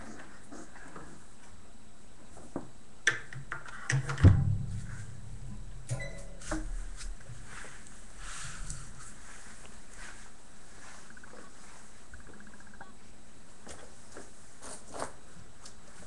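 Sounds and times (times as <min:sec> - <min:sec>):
knocks and bumps on metal cot: 0:04.1 - 0:07.5.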